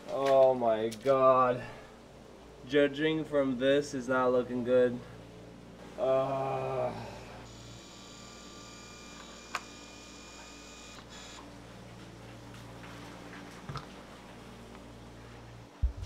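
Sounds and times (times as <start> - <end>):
high electronic whine: 7.5 - 11.4.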